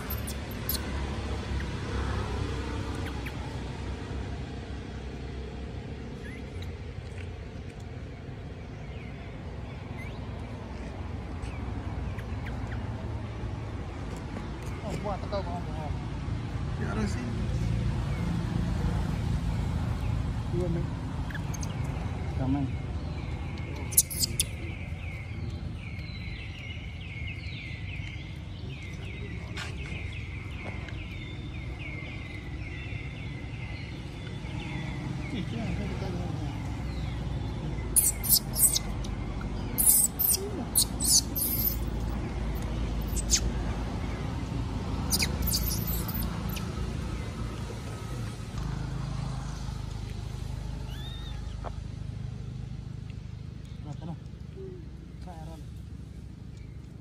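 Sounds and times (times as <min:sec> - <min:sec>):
baby monkey squealing cries: 0:00.0 - 0:00.9, 0:06.2 - 0:06.7, 0:23.9 - 0:24.6, 0:38.0 - 0:38.9, 0:39.8 - 0:41.9, 0:43.0 - 0:43.5, 0:45.1 - 0:46.7, 0:50.9 - 0:51.6
short high chirping calls: 0:00.0 - 0:00.9, 0:23.8 - 0:24.7, 0:37.9 - 0:39.0, 0:39.7 - 0:42.0, 0:42.6 - 0:43.6, 0:45.0 - 0:46.7, 0:50.9 - 0:51.6.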